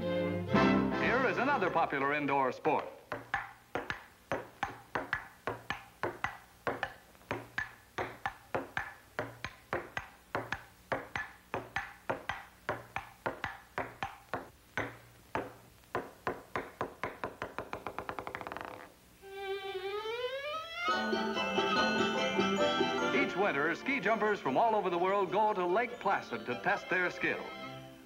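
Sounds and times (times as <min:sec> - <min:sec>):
table tennis ball clicks: 0:02.6 - 0:19.0.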